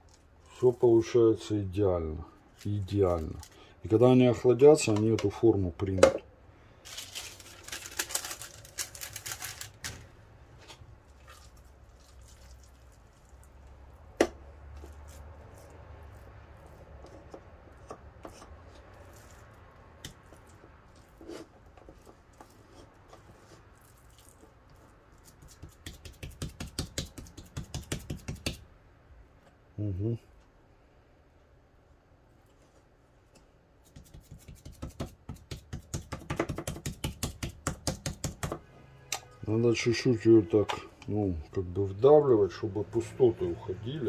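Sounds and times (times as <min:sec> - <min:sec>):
hands squishing minced meat: 0:10.6 - 0:28.6.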